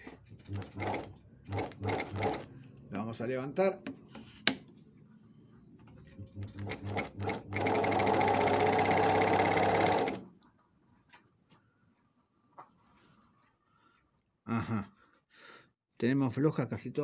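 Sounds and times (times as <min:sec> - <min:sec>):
industrial sewing machine running: 0:00.3 - 0:02.5, 0:06.1 - 0:10.3.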